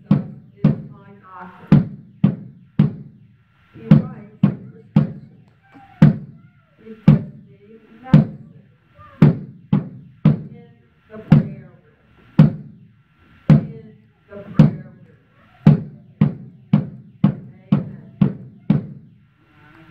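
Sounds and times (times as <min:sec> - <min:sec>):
barrel drum struck with stick: 0:01.7 - 0:03.2, 0:09.2 - 0:10.6, 0:12.4 - 0:12.8, 0:15.6 - 0:19.1.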